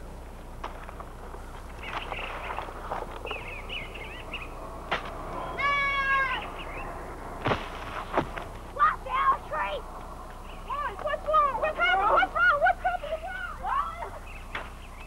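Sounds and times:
faint high cries: 5.3s - 7.0s.

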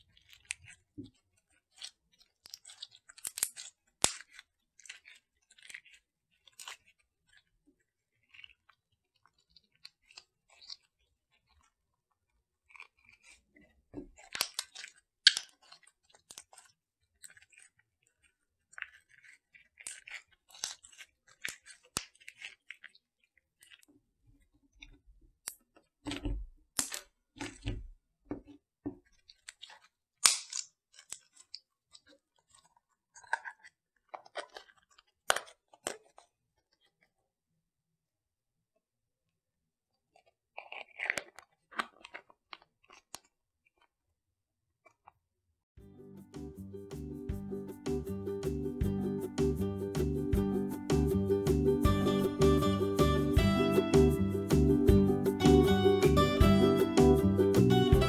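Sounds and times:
slime crackling and squishing: 0.0s - 23.9s, 29.1s - 37.2s.

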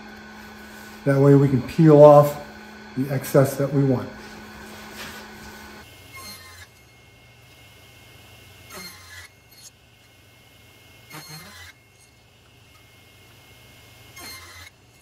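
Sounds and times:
table saw humming: 0.0s - 15.0s
saw blade cutting wood: 0.4s - 7.0s, 8.7s - 9.8s, 11.1s - 12.3s, 14.1s - 15.0s.

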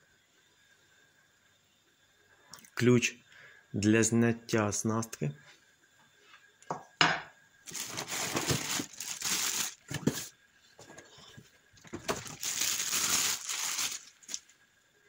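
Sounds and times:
plastic bag crinkling: 7.7s - 10.3s, 11.8s - 14.5s.

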